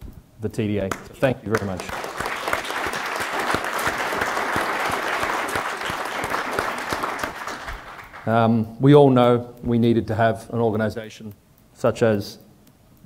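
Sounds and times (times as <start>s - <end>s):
audience applauding: 0.9s - 8.4s.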